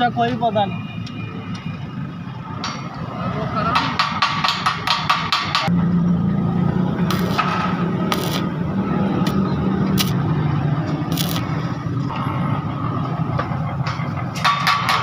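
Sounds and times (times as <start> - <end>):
welding arc crackling and sizzling: 7.0 - 11.9
sharp clicks: 10.0 - 10.2, 11.1 - 11.5.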